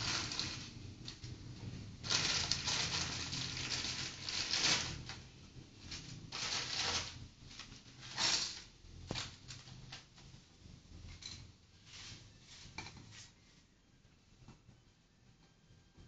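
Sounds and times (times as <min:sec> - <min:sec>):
plastic packaging crinkling: 0:00.0 - 0:00.7, 0:02.0 - 0:05.2, 0:05.9 - 0:09.6.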